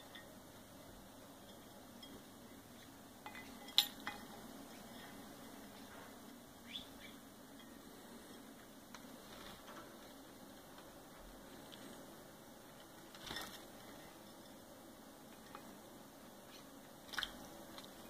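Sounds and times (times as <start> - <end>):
bird chirp: 6.6 - 7.3.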